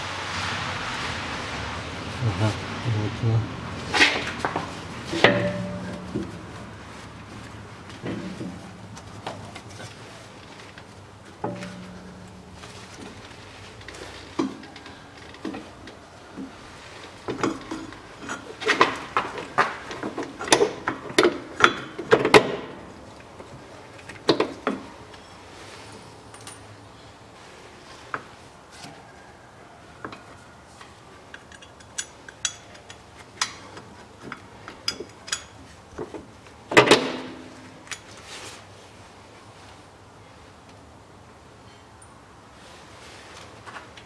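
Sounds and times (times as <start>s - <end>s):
metal clanks and clicks: 5.1s - 6.4s, 11.4s - 12.6s, 17.3s - 22.8s, 31.3s - 38.2s.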